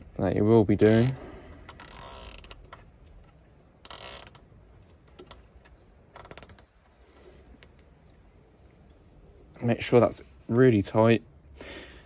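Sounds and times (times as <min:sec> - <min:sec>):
cable tie ratcheting clicks: 0:00.8 - 0:02.9, 0:03.8 - 0:07.0, 0:07.6 - 0:08.2.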